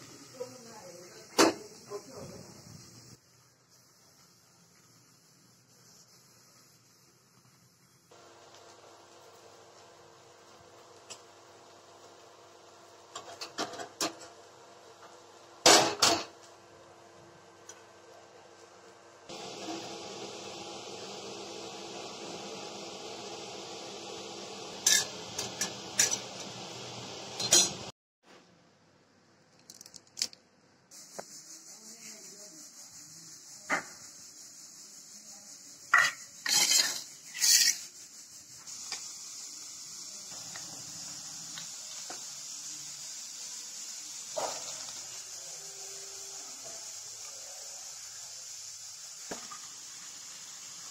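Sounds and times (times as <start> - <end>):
gas burner hissing: 0.0 - 27.9, 30.9 - 50.9
steel bowl and utensils clinking: 24.8 - 26.2, 35.9 - 37.9.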